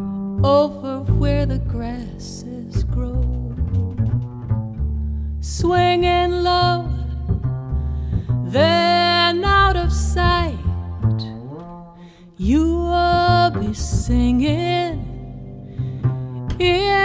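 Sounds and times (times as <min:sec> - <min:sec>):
double bass low notes: 0:00.0 - 0:17.0.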